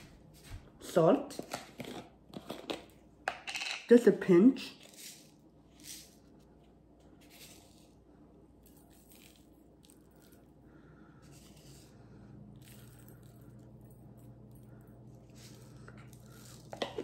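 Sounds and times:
low steady hum: 0.0s - 17.0s
salt grains rustling: 7.2s - 8.0s.

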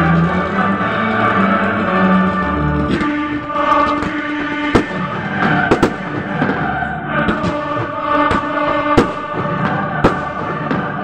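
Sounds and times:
choral music: 0.0s - 11.0s
fireworks bangs: 3.8s - 11.0s.

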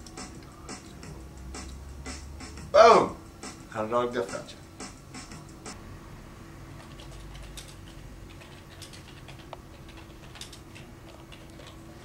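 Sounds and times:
computer keyboard typing: 6.8s - 12.0s.

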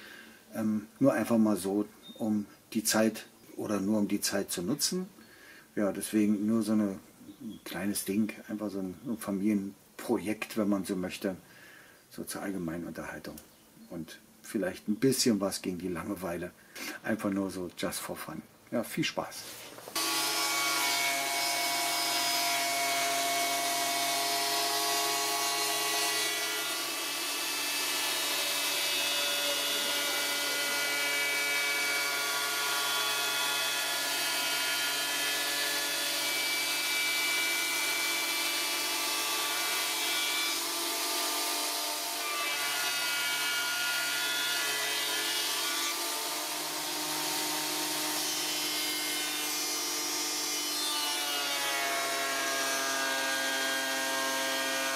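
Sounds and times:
woodworking machines whining: 19.9s - 54.9s.

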